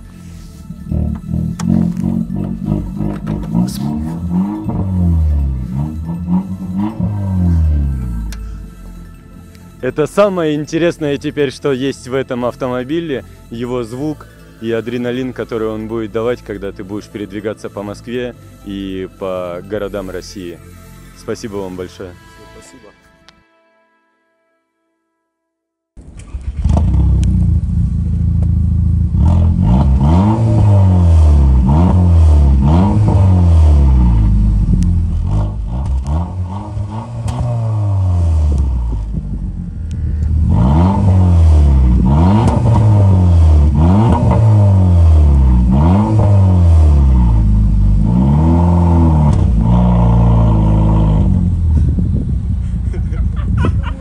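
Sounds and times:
car engine revving: 0.0s - 9.5s, 26.0s - 53.4s
exhaust pops: 0.9s - 5.2s, 34.1s - 46.4s, 47.1s - 53.7s.

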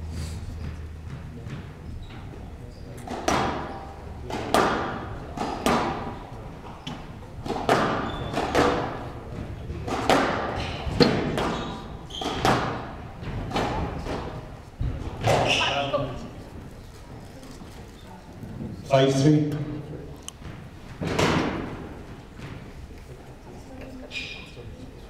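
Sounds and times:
squash ball cracking off walls: 3.0s - 6.3s, 7.4s - 15.7s, 20.5s - 22.7s.

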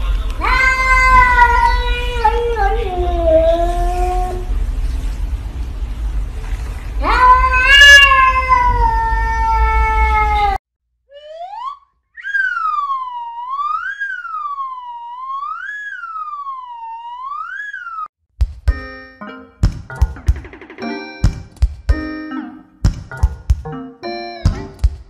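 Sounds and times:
cat meowing: 0.4s - 4.5s, 7.0s - 10.6s
wailing tone: 11.1s - 18.1s.

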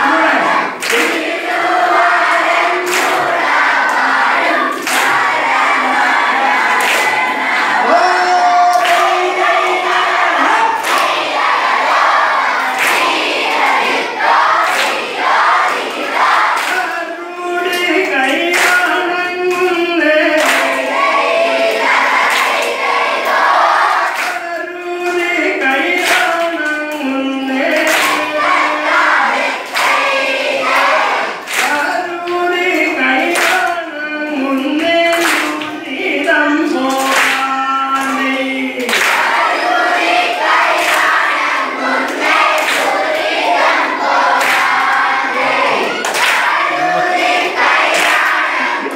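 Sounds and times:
group singing together: 0.0s - 48.9s
hands clapping in time: 0.8s - 1.6s, 2.3s - 4.1s, 4.7s - 5.3s, 6.7s - 7.2s, 7.9s - 9.2s, 10.4s - 11.2s, 12.6s - 15.1s, 15.7s - 17.0s, 17.7s - 20.9s, 24.0s - 28.4s, 30.7s - 39.4s, 42.1s - 43.3s, 44.4s - 45.0s, 45.9s - 48.9s.

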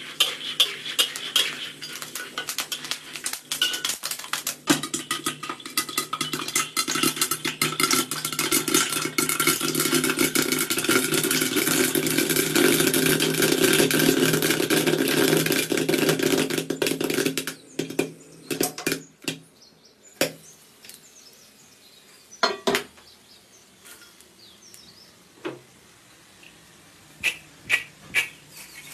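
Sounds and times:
popcorn popping in a lidded wok: 0.0s - 19.4s.

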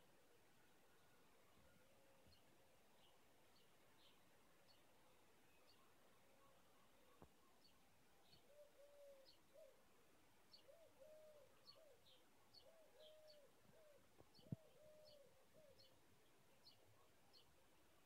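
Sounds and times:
small birds chirping: 0.0s - 18.0s
dove cooing: 8.4s - 9.8s, 10.7s - 15.9s.

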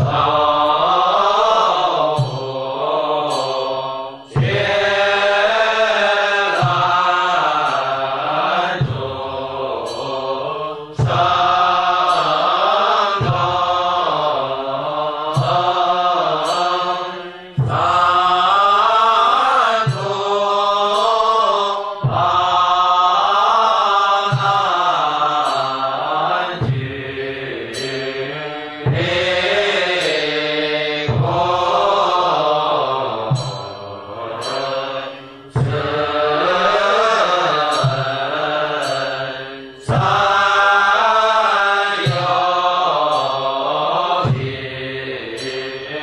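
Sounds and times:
monks chanting: 0.0s - 46.0s.

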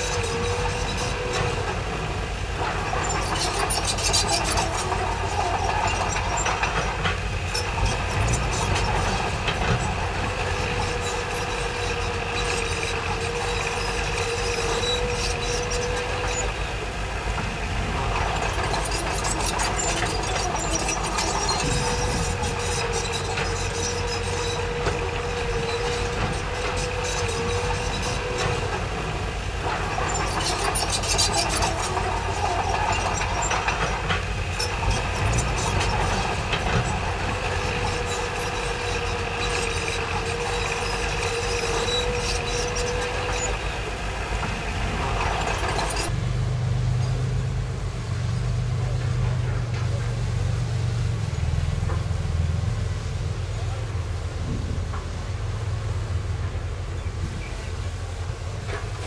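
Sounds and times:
tracks clanking and rattling: 0.0s - 46.3s, 46.9s - 59.0s
bulldozer diesel engine under load: 0.0s - 59.0s.

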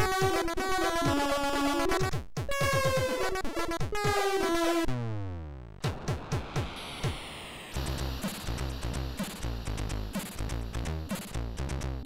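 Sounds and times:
chiptune music: 0.0s - 4.9s, 7.0s - 12.0s
falling sweep of tones: 5.8s - 9.8s.

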